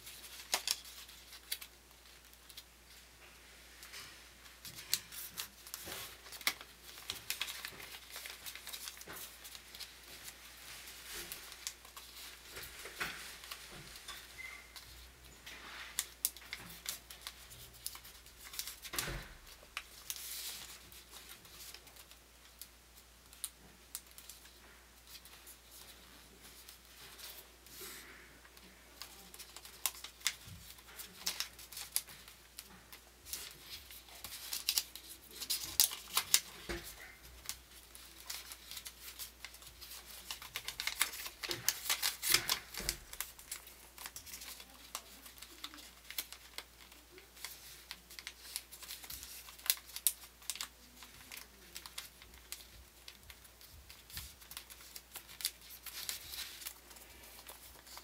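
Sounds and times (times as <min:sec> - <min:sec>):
paper rustling and crinkling: 0:00.0 - 0:58.0
paper folds scraping: 0:23.3 - 0:58.0.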